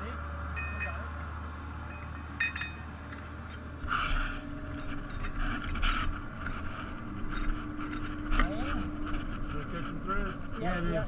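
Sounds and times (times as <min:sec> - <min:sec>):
low steady hum: 0:00.0 - 0:11.0
metal hardware clinking and scraping: 0:00.5 - 0:01.2, 0:01.8 - 0:10.7.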